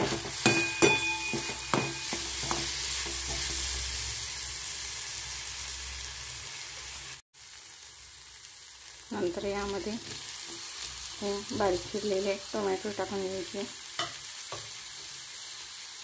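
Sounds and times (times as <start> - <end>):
metal spatula scraping a pan: 0.0 - 4.2
lentils sizzling in oil: 0.0 - 16.0
metal clinks on pan: 0.4 - 2.6.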